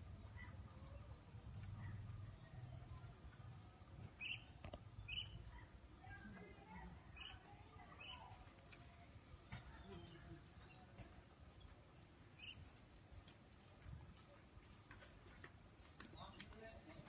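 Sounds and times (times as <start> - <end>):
bird chirping: 0.0 - 8.4, 12.4 - 13.1.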